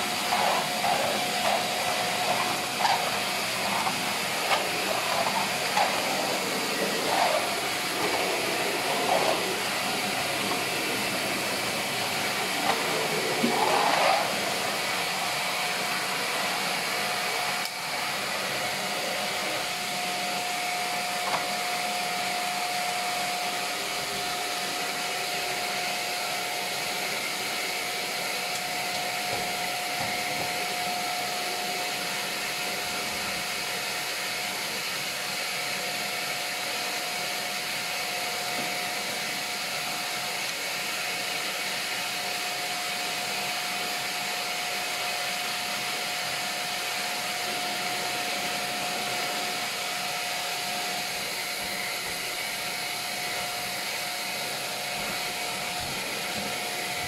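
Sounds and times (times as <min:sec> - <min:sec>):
vacuum cleaner whining: 0:00.0 - 0:57.0.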